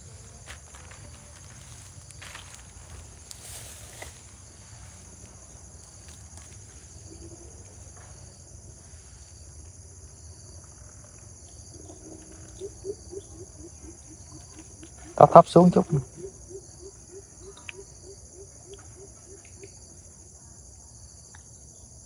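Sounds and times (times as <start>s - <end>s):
crickets chirping: 0.0s - 22.0s
bird hooting deeply: 11.7s - 19.7s.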